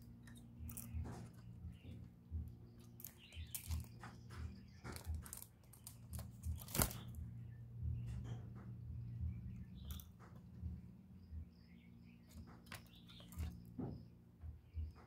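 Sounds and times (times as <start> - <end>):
dove rustling and fluttering: 0.0 - 7.4, 12.2 - 14.0
dull low thumps: 6.4 - 12.5.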